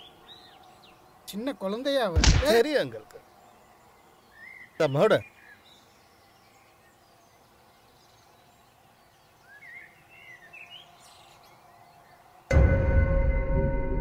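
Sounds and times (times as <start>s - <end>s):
faint outdoor ambience: 0.0s - 13.4s.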